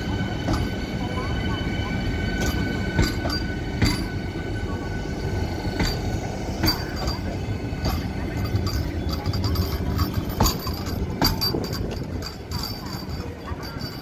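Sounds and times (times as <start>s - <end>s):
rumble of train wheels on track: 0.0s - 14.0s
sharp clanks and clicks: 5.8s - 14.0s.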